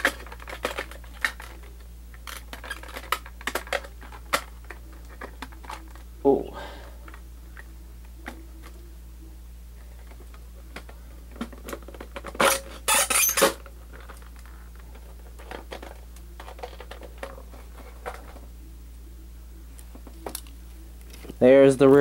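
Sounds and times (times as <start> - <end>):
hard plastic clicks and clatter: 0.0 - 6.0.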